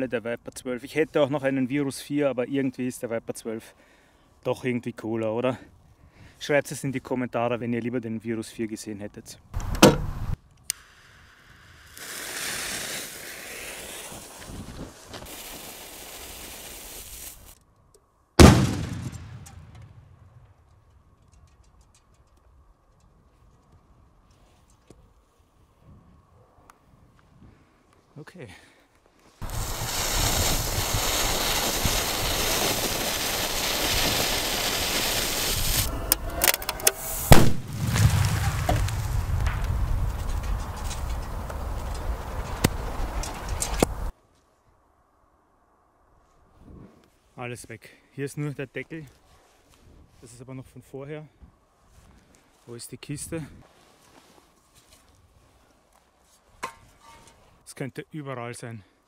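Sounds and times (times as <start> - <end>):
firecracker fuse hissing: 10.2 - 17.6, 29.4 - 35.9, 36.8 - 44.1
sharp cracks: 18.4 - 22.5, 29.4 - 44.1
fuse hissing: 29.4 - 35.9
firecracker exploding in metal can: 37.2 - 41.0.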